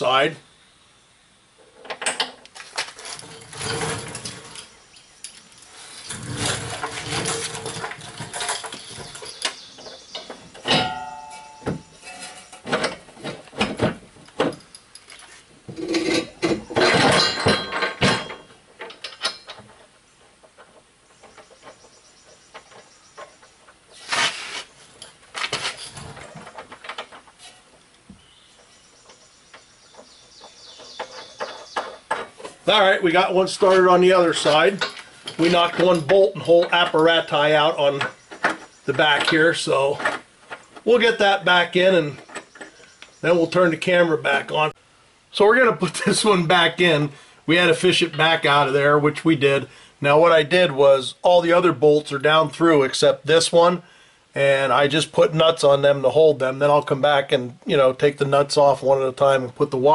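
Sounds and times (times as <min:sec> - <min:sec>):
metal clanks and scrapes: 0:01.8 - 0:27.9, 0:29.8 - 0:32.8, 0:33.6 - 0:41.3.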